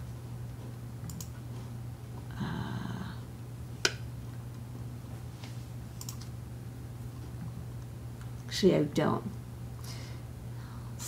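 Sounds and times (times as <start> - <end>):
low electrical hum: 0.0 - 11.0
sharp click: 6.0 - 6.3.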